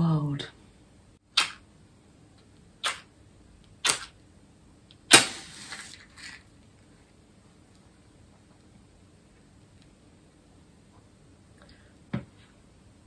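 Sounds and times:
match flaring with hiss: 5.1 - 6.4.

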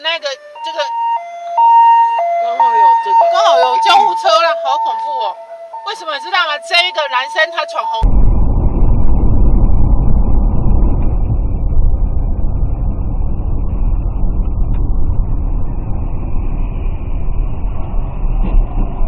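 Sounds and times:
car road and engine rumble: 8.0 - 19.0.

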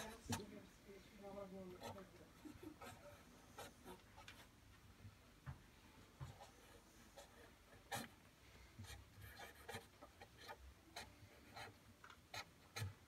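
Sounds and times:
marker scratching on wood: 0.0 - 0.5, 1.7 - 4.6, 6.2 - 8.2, 8.8 - 13.0.

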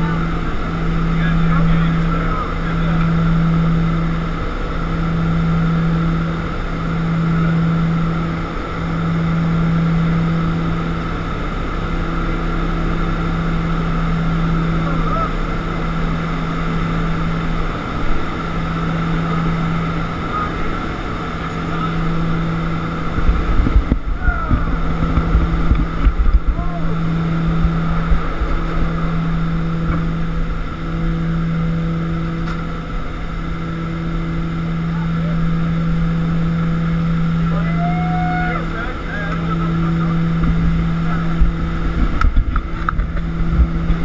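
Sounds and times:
rushing wind: 0.0 - 44.0
turboprop engines droning: 0.0 - 44.0
wind buffeting microphone: 17.4 - 31.9, 39.3 - 44.0.

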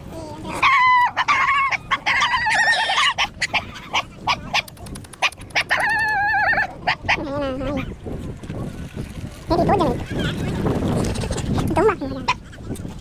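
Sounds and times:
dogs whining: 0.5 - 4.6
dogs yipping: 0.5 - 8.0, 10.0 - 13.0.

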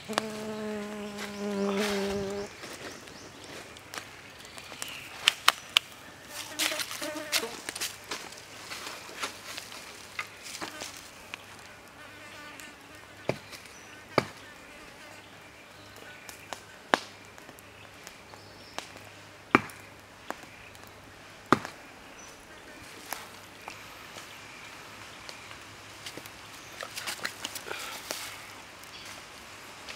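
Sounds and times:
insects buzzing: 0.0 - 4.0, 6.2 - 8.2.

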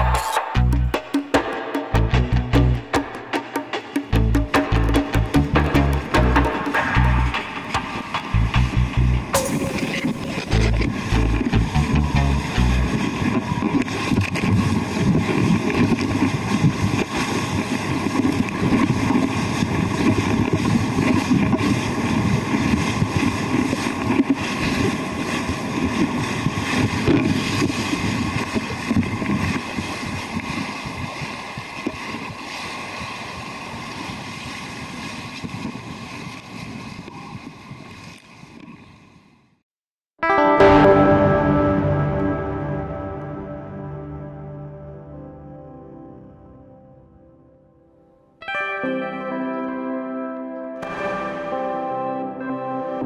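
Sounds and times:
water rushing and splashing: 0.0 - 38.9
wind buffeting microphone: 12.8 - 38.6.

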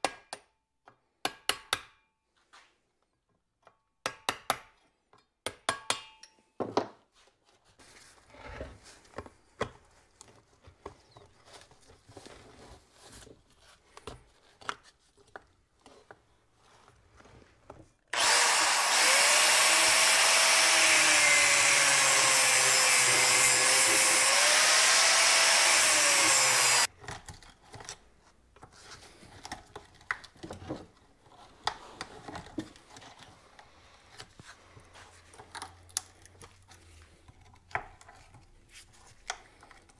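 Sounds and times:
angle grinder cutting metal: 18.1 - 26.9
hand tools clicking and scraping: 18.1 - 28.1.

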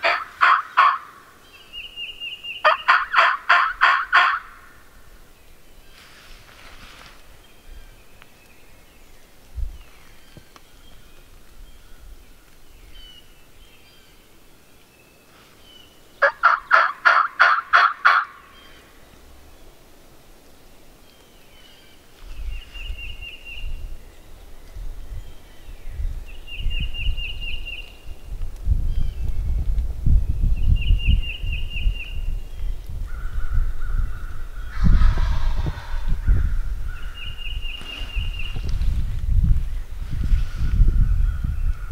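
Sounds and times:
wild turkey gobbling: 0.0 - 1.2, 2.6 - 4.7, 16.2 - 18.4
songbird chirping: 0.0 - 40.0
wind rumble on microphone: 4.7 - 13.8, 22.1 - 41.9.

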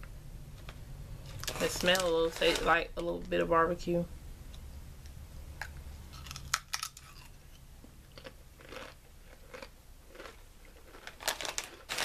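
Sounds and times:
crunching and chewing chips: 1.2 - 2.7, 6.1 - 12.0.

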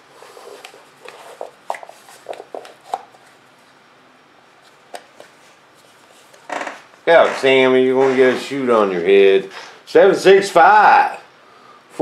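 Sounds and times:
rustles clicks and squeaks: 6.2 - 8.6.

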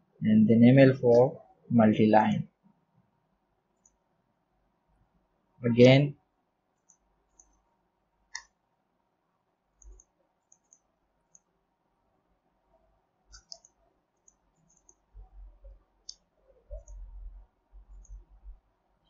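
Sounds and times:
mouse and keyboard clicks: 6.8 - 7.6, 8.3 - 8.6, 9.8 - 11.5, 13.3 - 15.1, 16.0 - 17.2, 17.8 - 18.3.

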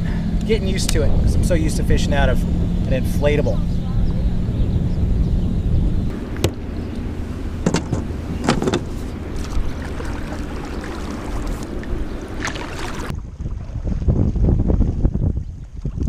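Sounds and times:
wind buffeting microphone: 0.0 - 16.0
paddle knocks and splashes: 7.6 - 15.0.

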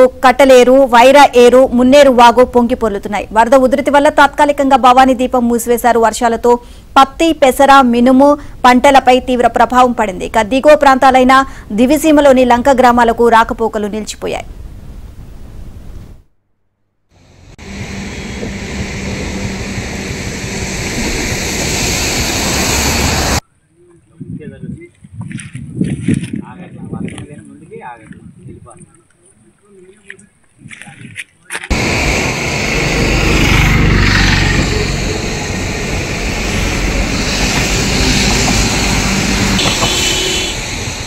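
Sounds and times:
floodwater roaring: 17.2 - 23.4, 31.7 - 41.0.

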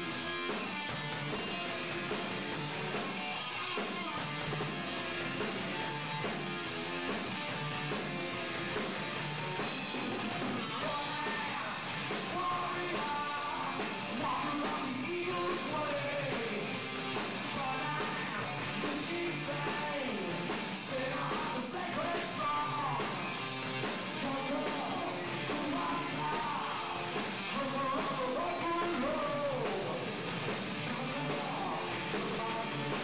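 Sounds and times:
drums keeping a steady beat: 0.0 - 33.0
electric guitars: 0.0 - 33.0
person singing and shouting: 10.6 - 23.4, 24.1 - 30.2, 30.8 - 33.0.

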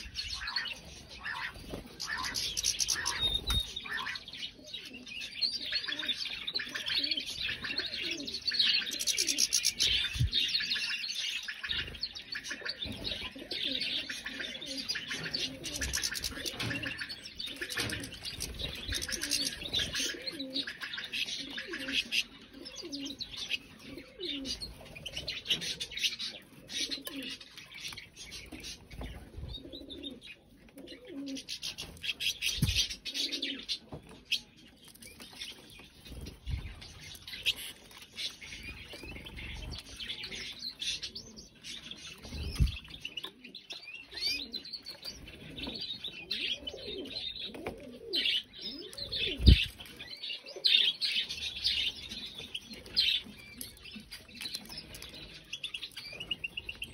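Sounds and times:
finches calling: 0.0 - 26.1
canaries singing: 0.0 - 56.9.

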